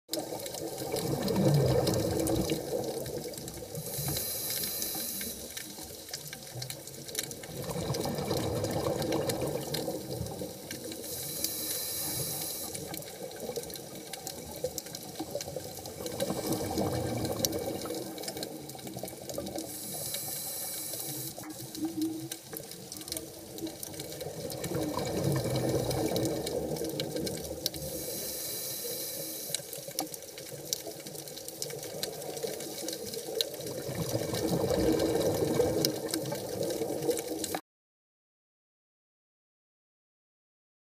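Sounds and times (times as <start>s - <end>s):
exhaled bubbles gurgling: 0.1s - 37.6s
regulator inhalation hiss: 3.8s - 5.8s, 10.9s - 12.9s, 19.6s - 21.8s, 27.8s - 29.8s.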